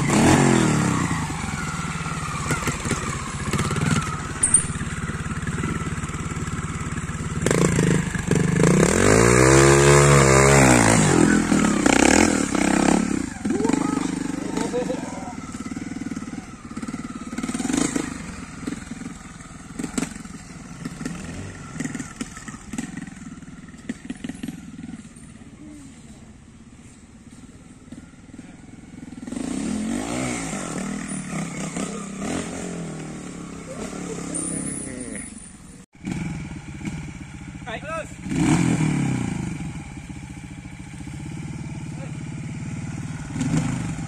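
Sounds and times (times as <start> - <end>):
motorcycle engine revving: 0.0 - 44.0.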